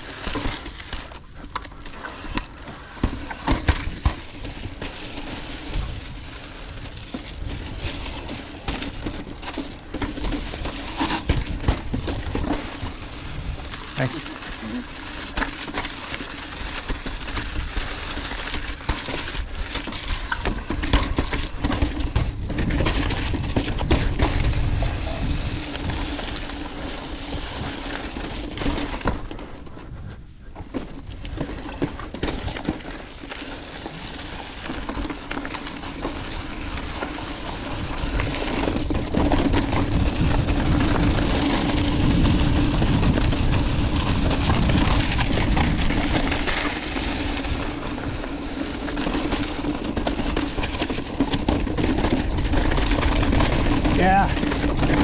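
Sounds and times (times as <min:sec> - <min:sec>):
bike clicks and knocks: 0:00.0 - 0:24.9, 0:25.5 - 0:55.0
bike tyres crunching over rock: 0:00.0 - 0:55.0
wind on microphone: 0:22.1 - 0:26.2.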